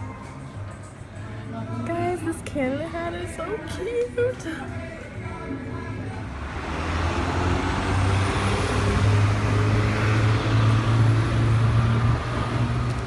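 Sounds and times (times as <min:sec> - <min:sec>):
traffic noise: 0:00.0 - 0:13.0
large vehicle engine passing: 0:06.1 - 0:13.0.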